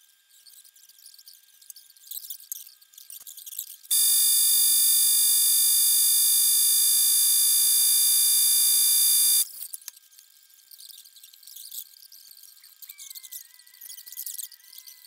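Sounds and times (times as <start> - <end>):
loud buzzing tone: 3.9 - 9.5.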